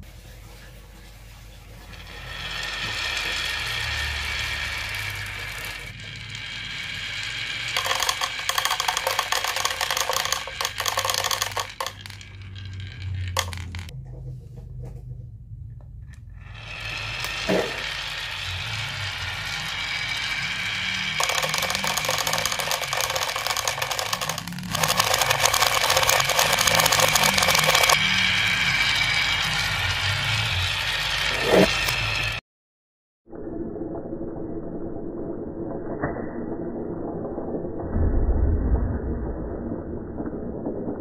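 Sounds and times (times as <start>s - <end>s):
balls rolling in a wooden groove: 1.6s - 14.0s, 16.4s - 32.4s
balls clattering into a plastic jar: 2.1s - 13.9s, 16.6s - 28.0s.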